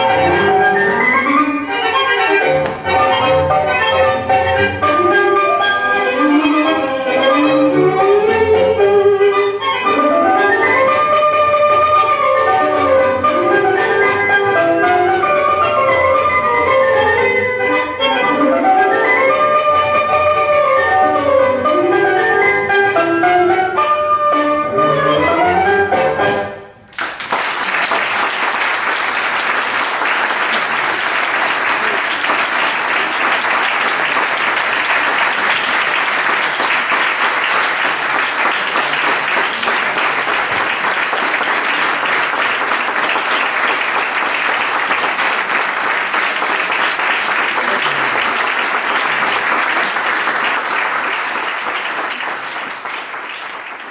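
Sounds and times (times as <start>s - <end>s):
audience applauding: 26.9s - 53.9s.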